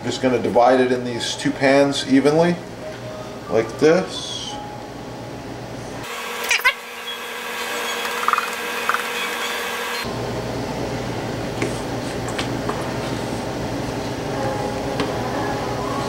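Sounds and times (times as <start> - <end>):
machine hum: 4.2 - 16.0.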